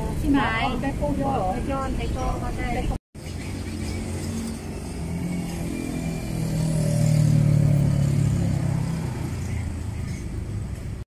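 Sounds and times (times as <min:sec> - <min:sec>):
vehicle engine passing by: 0:03.2 - 0:11.0.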